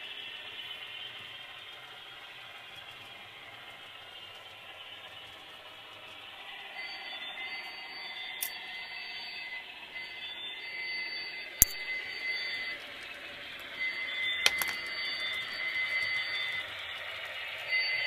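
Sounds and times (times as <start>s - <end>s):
model train whine: 0.0s - 18.0s
sharp clicks: 11.6s - 11.8s.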